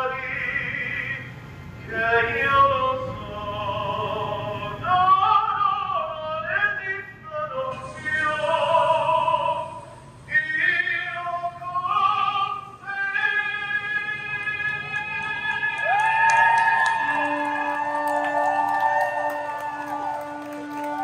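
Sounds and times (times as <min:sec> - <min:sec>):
person singing long notes: 0:11.1 - 0:21.0.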